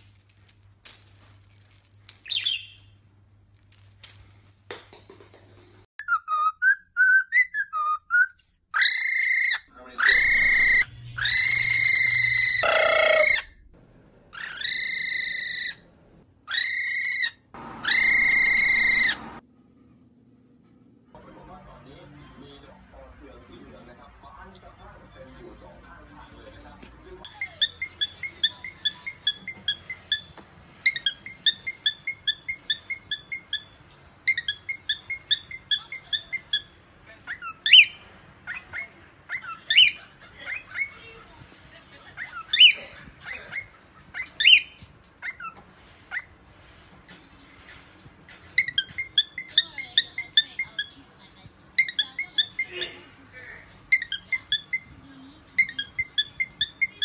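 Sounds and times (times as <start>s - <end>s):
cockatiel whistling calls: 6.0s - 13.5s, 16.5s - 19.3s, 27.4s - 36.6s, 42.2s - 46.3s.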